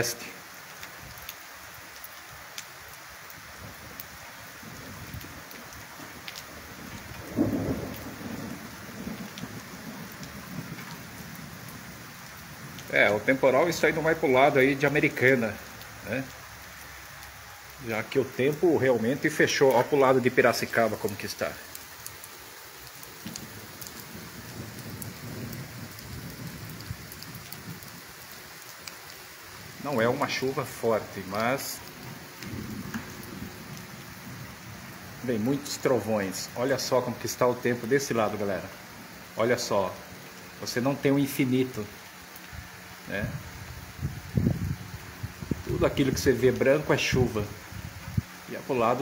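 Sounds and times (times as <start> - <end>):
steady rain falling: 0.0 - 49.0
thunder rumbling: 3.6 - 16.4, 19.2 - 28.7, 29.5 - 38.4, 42.5 - 48.3.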